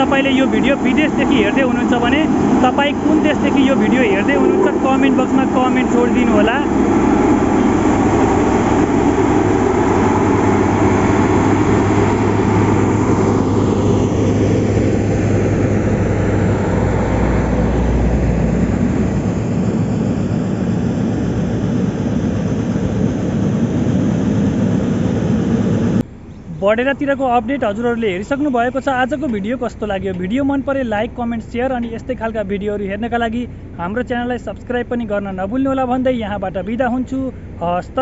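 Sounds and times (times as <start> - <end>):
road roller diesel engine: 0.0 - 19.6, 25.2 - 38.0
vehicle passing: 0.0 - 21.1
deep rumble: 0.0 - 37.6.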